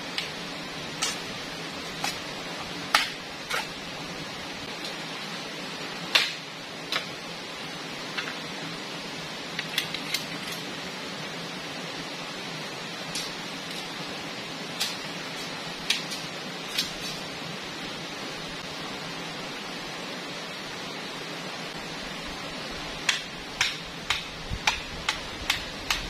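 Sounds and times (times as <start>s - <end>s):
blade chopping bamboo: 1.9s - 2.3s, 2.9s - 3.8s, 6.1s - 7.1s, 23.0s - 26.0s.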